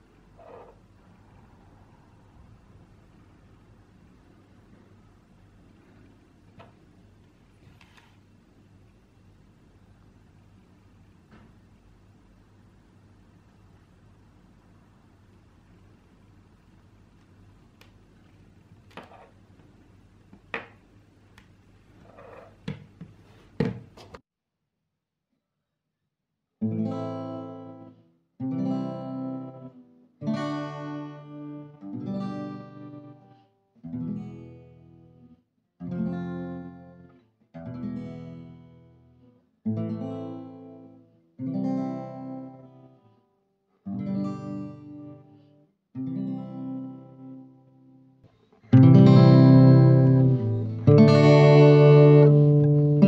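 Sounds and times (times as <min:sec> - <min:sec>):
acoustic guitar chords ringing: 0:26.6 - 0:33.2, 0:48.7 - 0:53.0.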